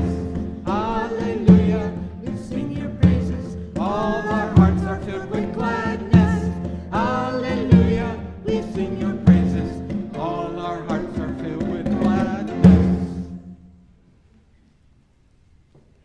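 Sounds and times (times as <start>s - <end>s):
man and woman singing hymn: 0.0s - 13.5s.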